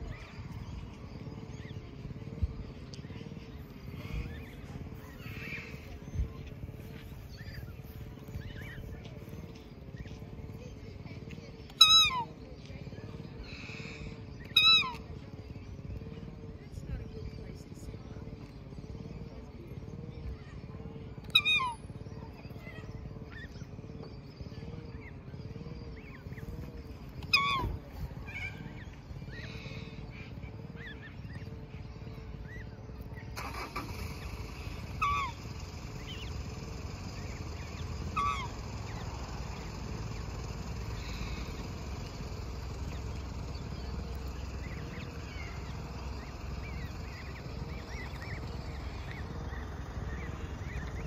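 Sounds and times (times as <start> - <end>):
cygnets peeping: 0.0 - 51.0
steady low rumble: 0.0 - 51.0
swan calling: 11.7 - 12.3, 14.4 - 15.0, 21.3 - 21.8, 27.2 - 31.4, 33.4 - 41.7.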